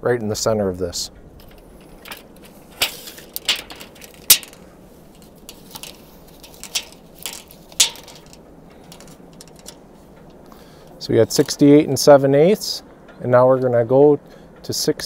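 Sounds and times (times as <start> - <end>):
tape measure clicks and rustles: 1.4 - 9.8.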